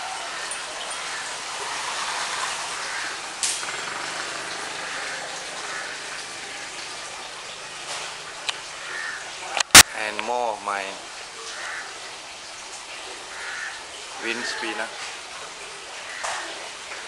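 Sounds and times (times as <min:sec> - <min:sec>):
sharp click: 0:09.6 - 0:09.9.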